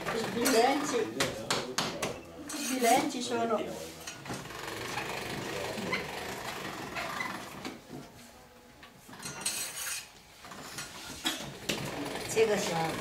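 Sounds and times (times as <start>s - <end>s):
pasta machine clattering: 4.2s - 7.6s, 11.5s - 13.0s.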